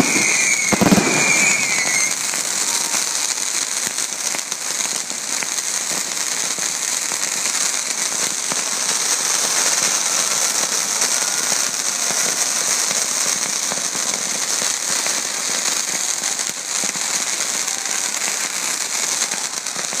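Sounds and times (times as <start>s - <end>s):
fireworks crackling: 0.0s - 20.0s.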